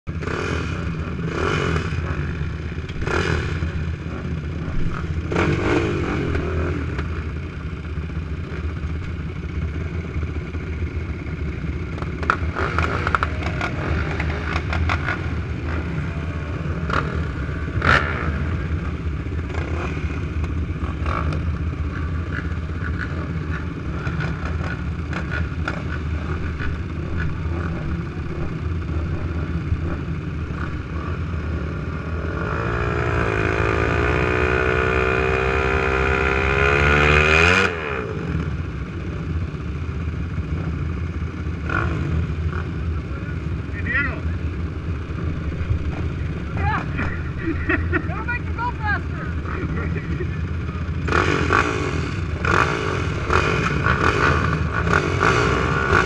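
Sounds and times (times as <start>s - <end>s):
quad engines idling: 0.1s - 56.0s.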